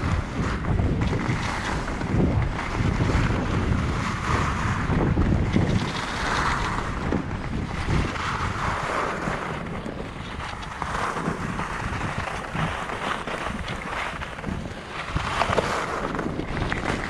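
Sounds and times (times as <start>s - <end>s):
skis scraping on snow: 0.0s - 17.0s
wind buffeting microphone: 0.0s - 17.0s.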